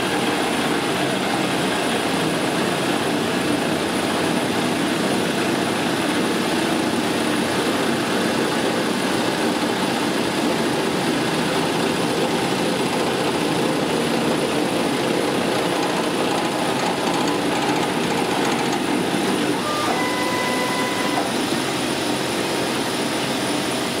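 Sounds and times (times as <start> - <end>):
milling machine cutting steel: 0.2 - 22.8
brief high-pitched tone: 19.6 - 21.4.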